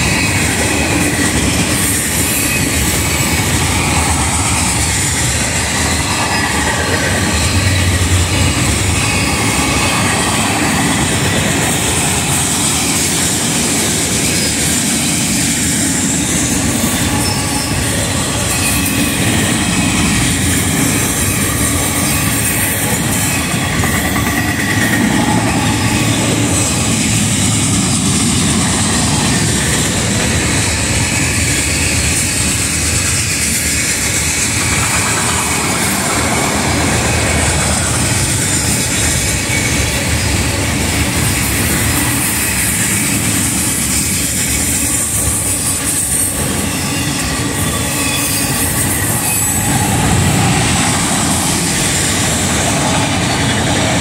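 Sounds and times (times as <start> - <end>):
high whine: 0.0 - 42.8
freight train rolling past: 0.0 - 54.0
steel wheels clattering on rail: 0.0 - 54.0.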